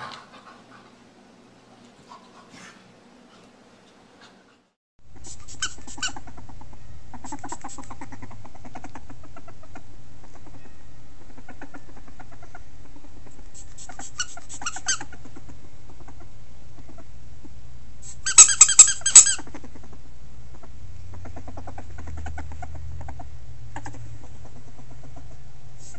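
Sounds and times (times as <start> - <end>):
steady low hum: 0.0 - 25.9
ferret squeaking and clucking: 5.2 - 17.1, 18.0 - 25.9.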